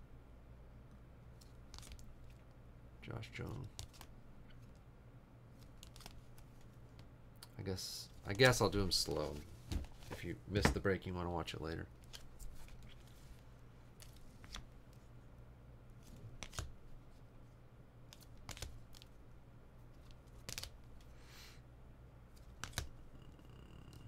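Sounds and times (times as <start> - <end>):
cards rustling: 1.3 - 2.5, 3.4 - 4.8, 5.5 - 7.1, 12.0 - 15.0, 16.0 - 17.0, 18.1 - 19.2, 19.9 - 21.1, 22.3 - 23.0
cards clicking and tapping: 1.4 - 2.4, 3.5 - 4.7, 14.0 - 14.7, 16.1 - 16.7, 18.1 - 19.1, 20.0 - 21.1, 22.4 - 23.0.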